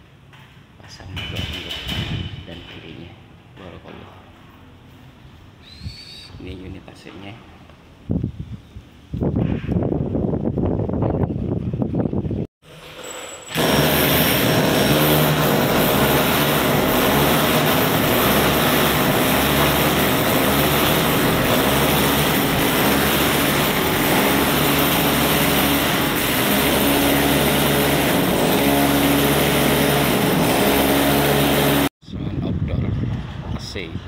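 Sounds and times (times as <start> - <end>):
electric drill boring through wall: 12.6 - 31.9.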